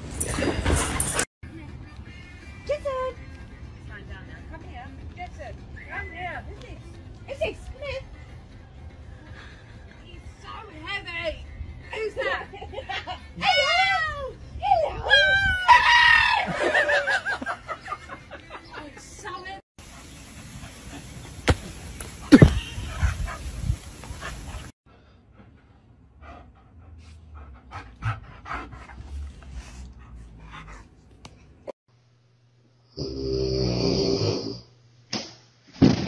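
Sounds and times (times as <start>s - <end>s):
dogs play-fighting: 0.0s - 1.3s
dog panting: 22.9s - 31.6s.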